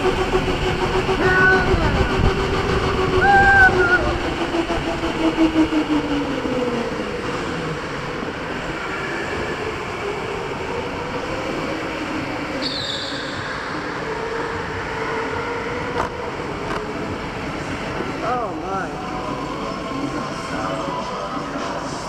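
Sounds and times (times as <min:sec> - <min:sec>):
wind noise: 0:00.0 - 0:12.6.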